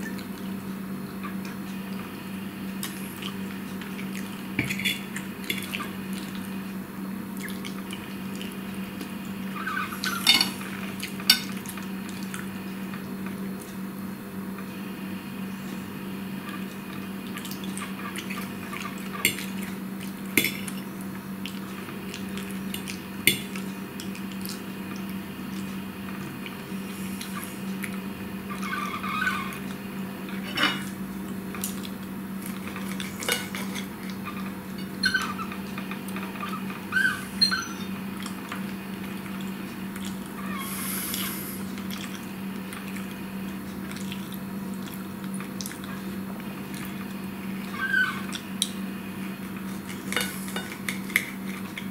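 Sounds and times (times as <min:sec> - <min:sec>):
steady low hum: 0:00.0 - 0:51.9
cutlery clinking on a plate: 0:10.1 - 0:10.6, 0:30.5 - 0:30.9.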